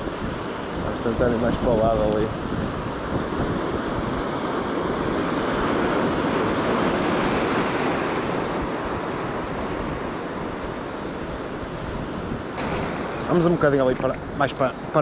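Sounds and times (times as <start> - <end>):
wind buffeting microphone: 0.0 - 15.0
surf breaking over rocks: 12.5 - 15.0.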